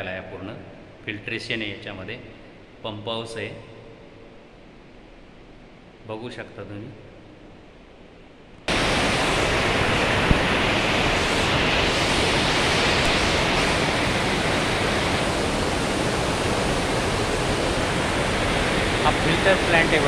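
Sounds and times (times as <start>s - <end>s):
rushing water: 8.7s - 20.0s.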